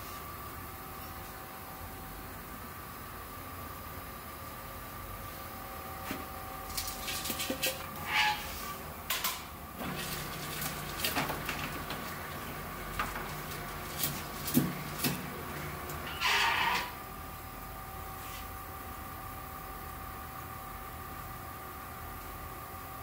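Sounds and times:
dough mixer humming: 1.8 - 23.0
paper bag rustling: 9.8 - 15.8.

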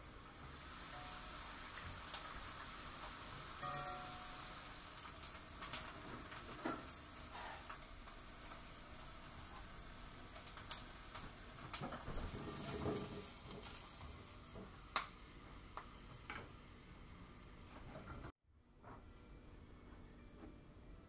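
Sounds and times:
sharp clinks of pan on bowl: 3.6 - 4.6.

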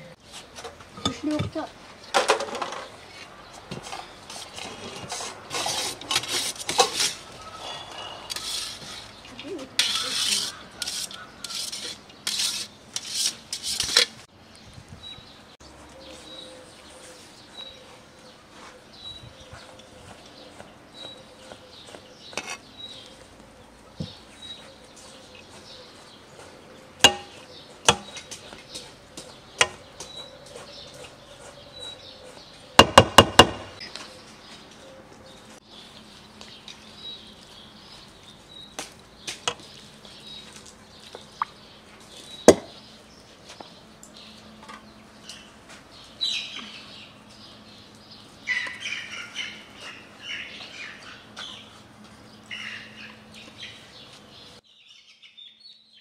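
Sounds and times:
birds chirping: 7.2 - 13.0, 14.3 - 56.0.

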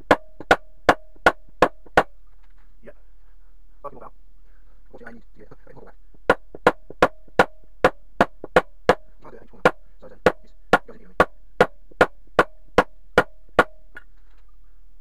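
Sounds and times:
rubber mallet striking metal: 0.0 - 2.1, 6.3 - 13.9.

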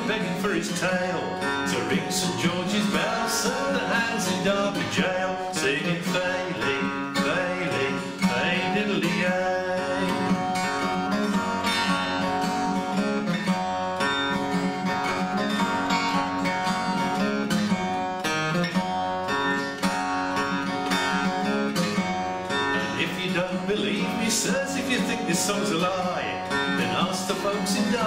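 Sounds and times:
man singing: 0.0 - 12.3, 22.6 - 28.0
acoustic guitar strumming: 0.0 - 28.0.

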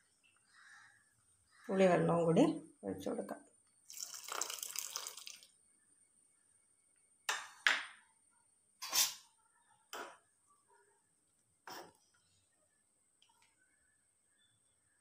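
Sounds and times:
liquid pouring into pan: 3.9 - 5.5
spoon scraping pan: 8.8 - 9.3.

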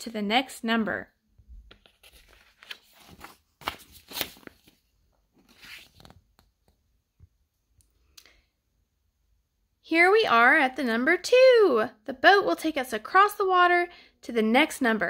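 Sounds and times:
paper page turning: 1.6 - 6.8.

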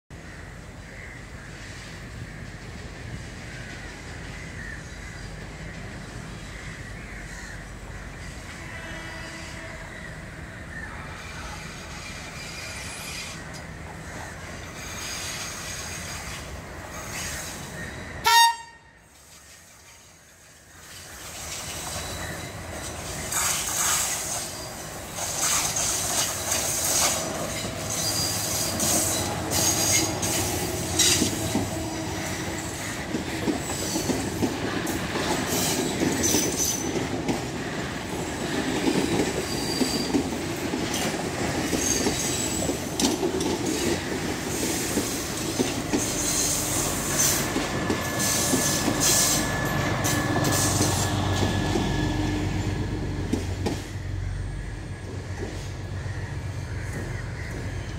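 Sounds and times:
train rumbling past: 0.1 - 57.9
train horn blast: 8.5 - 10.0, 18.2 - 19.1
rail clatter: 21.2 - 54.1
high wheel squeals: 21.6 - 32.8.

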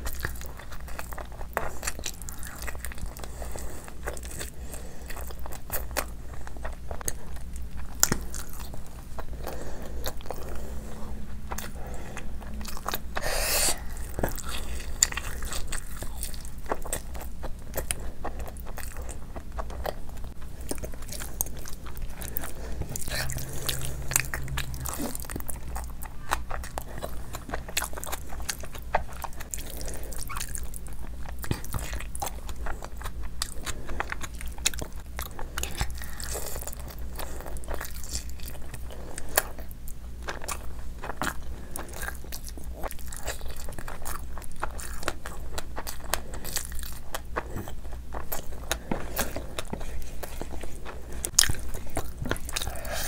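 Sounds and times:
steady low hum: 0.0 - 53.0
wet chewing with lip smacks: 11.5 - 53.0.

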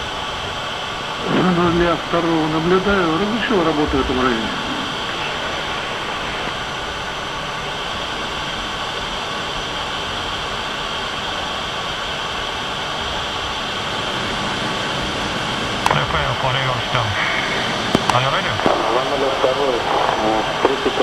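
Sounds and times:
jet in flight rushing: 1.0 - 9.4.

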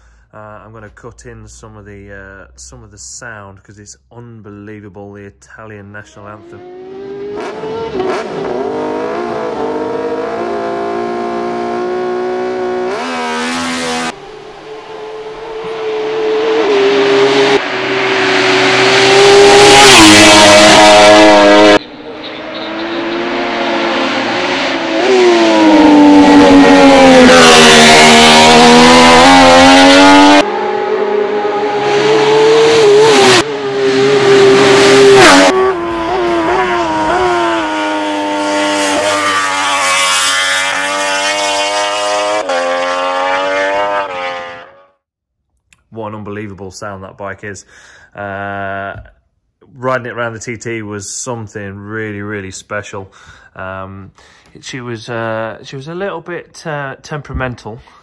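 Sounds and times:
racing motorcycle passing by: 6.5 - 44.9.

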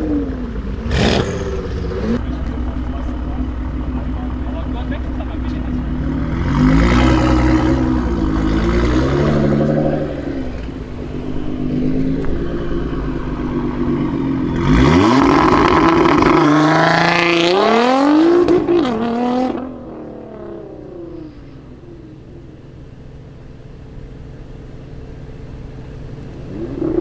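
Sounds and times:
car engine revving: 0.0 - 27.0
car accelerating through gears: 13.8 - 21.4.

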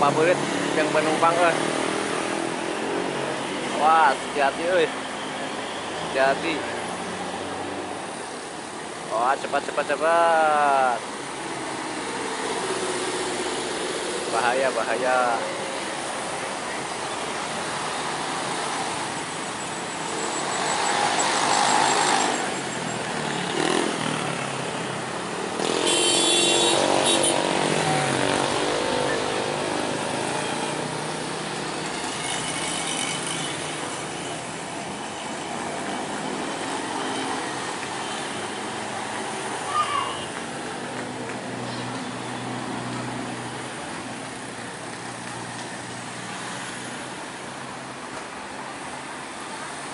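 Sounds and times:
road traffic passing: 0.0 - 49.9
vehicle horn: 25.6 - 27.5.

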